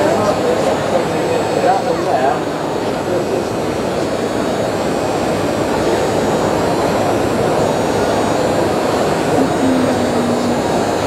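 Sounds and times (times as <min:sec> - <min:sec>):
electric hydraulic pump running: 0:03.4 - 0:11.0.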